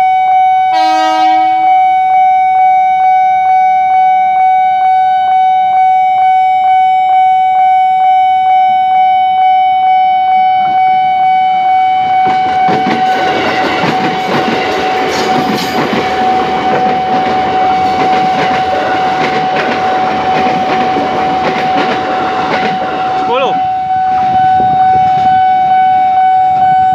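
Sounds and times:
level crossing alarm ringing: 0.0 - 26.9
electric train passing: 0.5 - 26.9
train wheels clattering on rails: 12.2 - 23.3.

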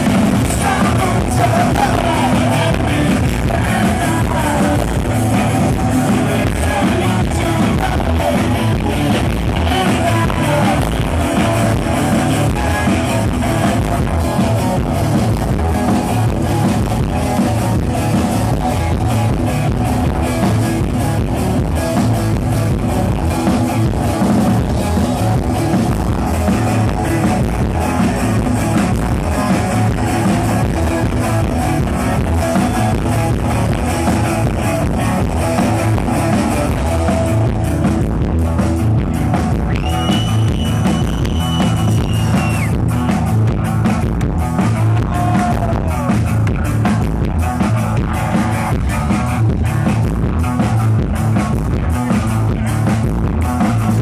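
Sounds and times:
bass guitar: 0.0 - 54.0
drums with steady beat: 0.0 - 54.0
electric guitars: 0.0 - 54.0.

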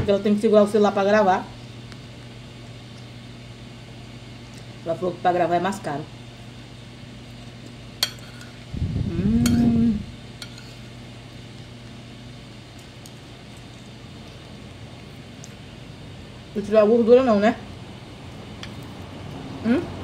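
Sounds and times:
loud low hum: 8.0 - 10.4.

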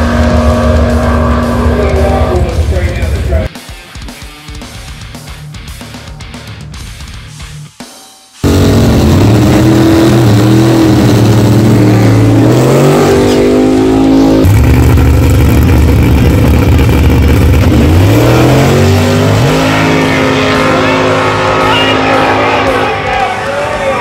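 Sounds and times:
drag racing engines revving: 0.0 - 3.5, 8.4 - 24.0.

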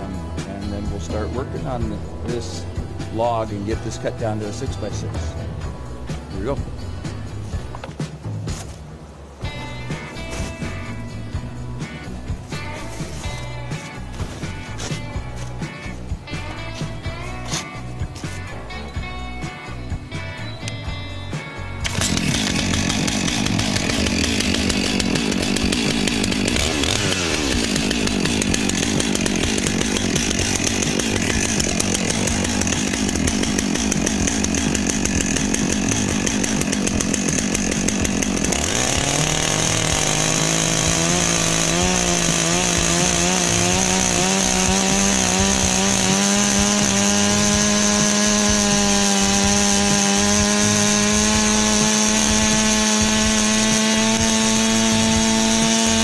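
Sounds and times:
chainsaw cutting log: 0.0 - 5.5, 9.5 - 19.5, 21.6 - 56.0.

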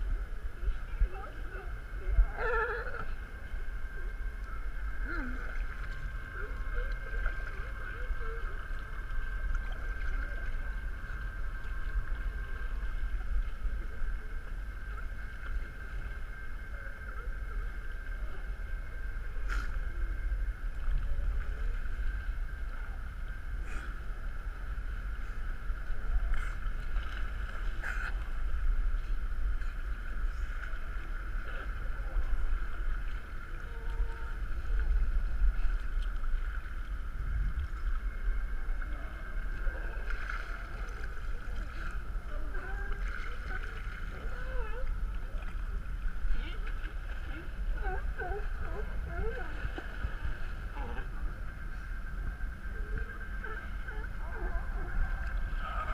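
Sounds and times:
wind and water rumble: 0.0 - 55.9.

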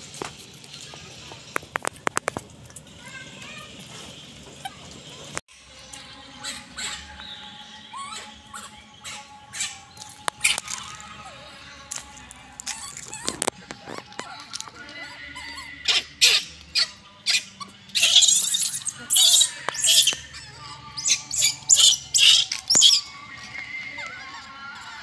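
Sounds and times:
baby macaque screeching: 6.3 - 11.7, 12.6 - 25.0.

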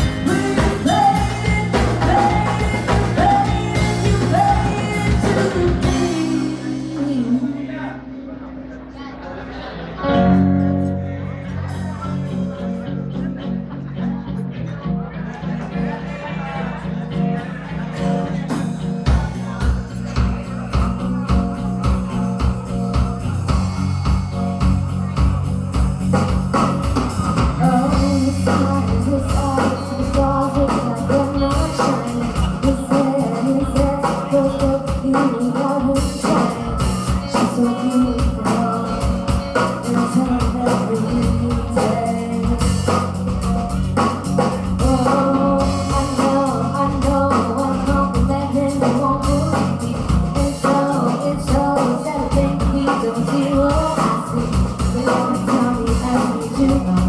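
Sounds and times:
drum kit beat: 0.0 - 7.5, 17.9 - 57.0
woman singing: 0.0 - 7.8, 27.6 - 43.2, 44.0 - 57.0
electric guitar: 0.0 - 57.0.

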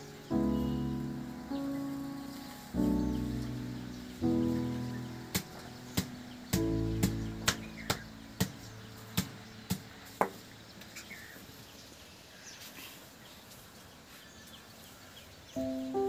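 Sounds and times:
bird chirps: 0.0 - 13.4, 14.0 - 16.0
faint outdoor background: 0.0 - 16.0.

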